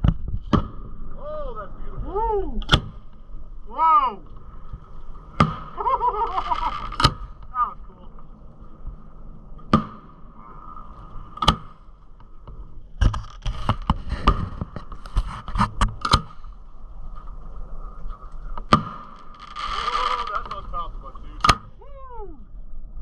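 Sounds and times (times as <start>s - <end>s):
firework bangs: 5.2s - 7.6s, 18.6s - 21.6s.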